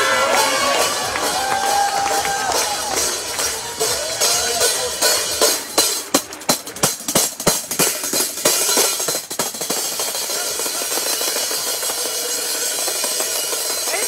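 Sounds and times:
percussion band playing: 0:00.0 - 0:14.0.

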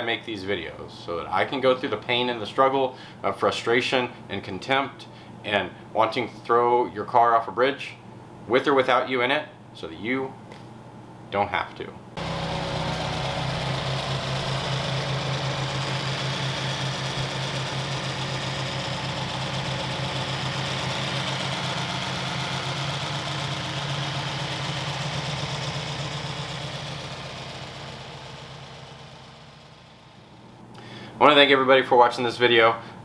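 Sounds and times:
car engine idling: 0:12.2 - 0:30.5.

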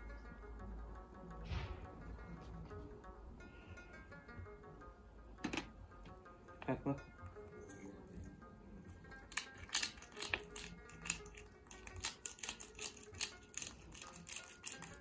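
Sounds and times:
soft background music: 0:00.0 - 0:15.0
pepper grinder clicking: 0:09.3 - 0:15.0.

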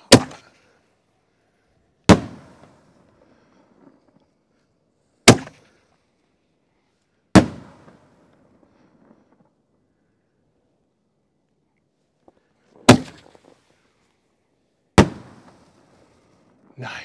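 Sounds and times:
firework shells bursting: 0:15.0 - 0:16.7.

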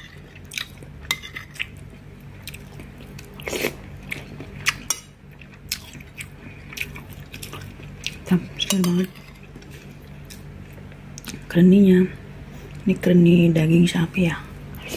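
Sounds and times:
chewing and biting: 0:00.1 - 0:08.3.

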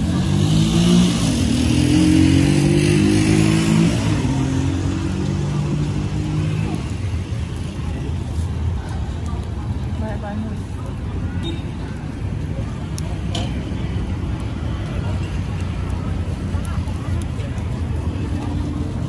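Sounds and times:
vehicle engine revving: 0:00.0 - 0:07.0
street traffic noise: 0:00.0 - 0:19.0.

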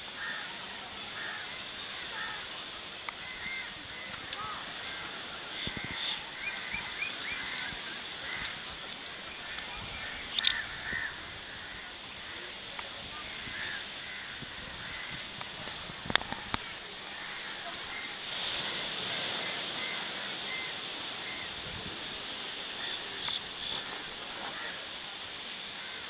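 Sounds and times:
birds chirping and calling: 0:09.3 - 0:11.2.

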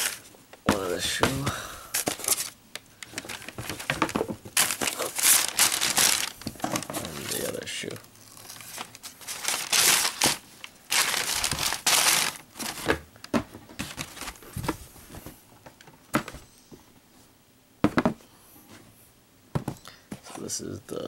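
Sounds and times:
tissue paper rustling: 0:00.0 - 0:01.2, 0:01.9 - 0:12.9, 0:13.8 - 0:14.8.

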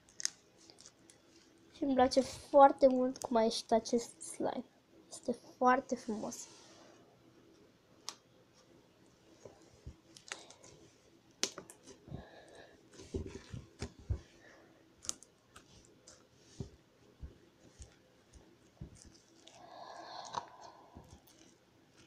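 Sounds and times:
slime squelching and popping: 0:17.2 - 0:22.0.

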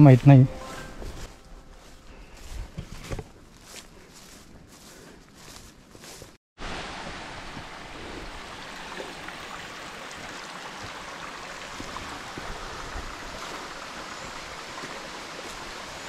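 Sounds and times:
stream water rushing: 0:06.6 - 0:16.0.

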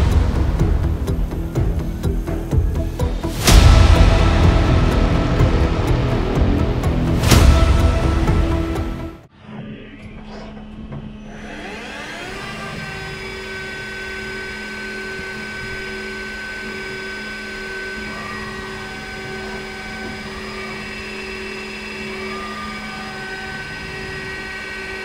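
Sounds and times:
lathe spindle whine: 0:10.6 - 0:25.0.

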